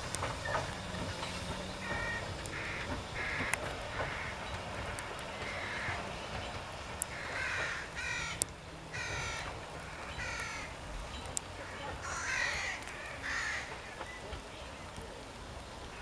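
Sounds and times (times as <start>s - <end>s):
sharp ticks: 0.0s - 14.4s
bird harsh calls: 0.5s - 14.9s.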